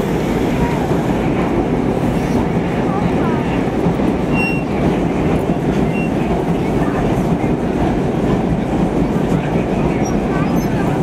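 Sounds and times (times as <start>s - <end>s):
subway train wheels rumbling: 0.0s - 11.0s.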